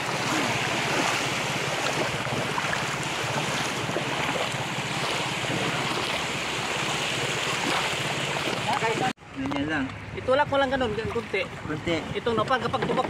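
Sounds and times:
small waves washing on shore: 0.0 - 9.2
wind buffeting microphone: 0.0 - 13.0.

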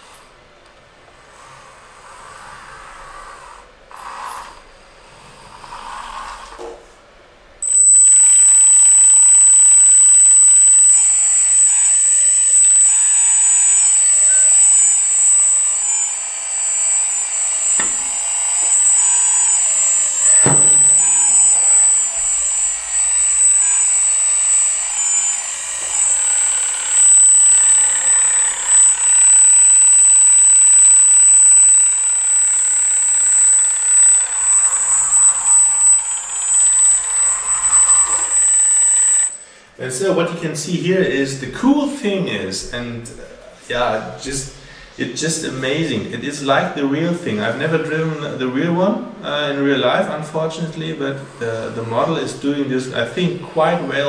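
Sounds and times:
hydraulic pump high whine: 0.0 - 4.9, 7.5 - 54.0
wavering motor tones: 7.6 - 39.6.

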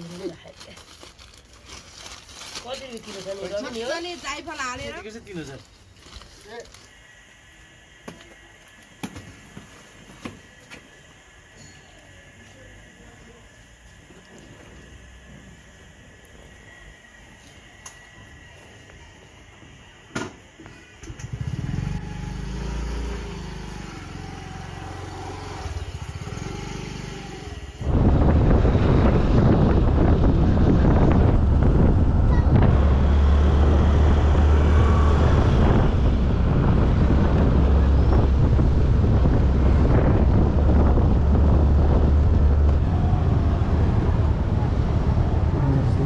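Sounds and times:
surrounding traffic: 10.6 - 46.0
wind rumbling over microphone: 27.4 - 46.0.

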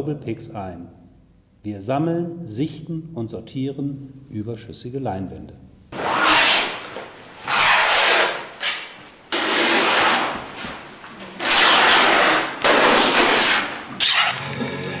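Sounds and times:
canvas tearing: 6.0 - 14.6.

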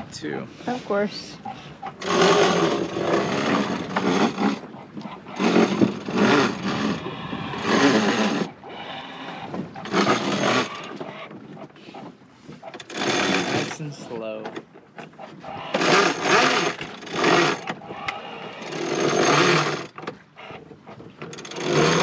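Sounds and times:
wind buffeting microphone: 2.8 - 12.3.

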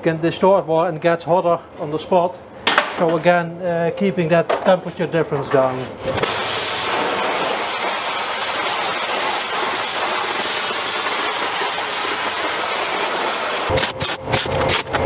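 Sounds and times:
torch flame hissing: 6.0 - 13.7.

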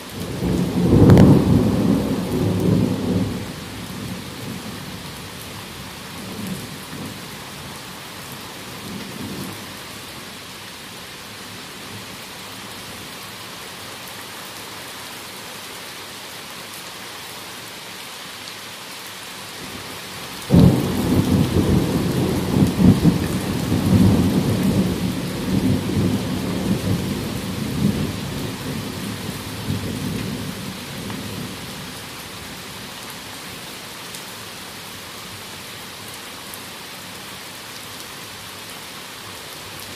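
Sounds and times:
heavy rain: 0.0 - 39.9
thunder rumbling: 0.2 - 4.8, 20.5 - 31.6
loud thunderclap: 20.5 - 27.1.

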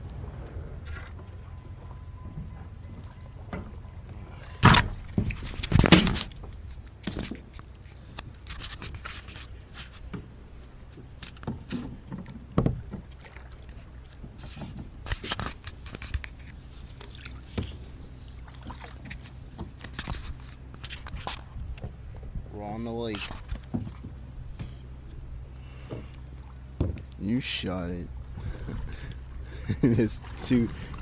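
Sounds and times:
low steady rumble: 0.0 - 31.0
paddle splashing and knocking: 4.4 - 22.5, 23.1 - 27.2, 28.2 - 31.0.

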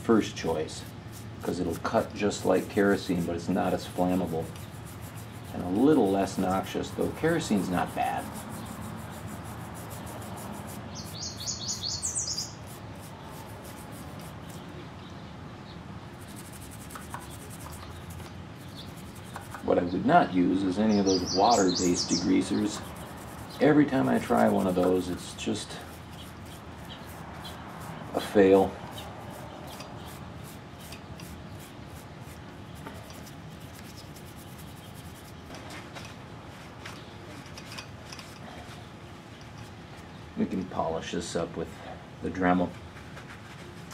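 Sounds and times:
hands scrubbing metal part: 0.2 - 11.2, 12.6 - 14.6, 16.2 - 19.7, 21.0 - 35.5
bird chirping: 7.4 - 25.4, 26.0 - 30.2, 32.6 - 35.6.

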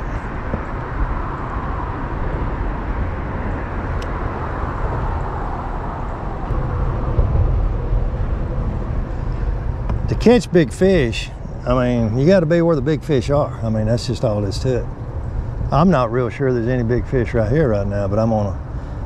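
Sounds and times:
road traffic rumble: 0.0 - 19.0
wind rumble: 0.0 - 19.0.

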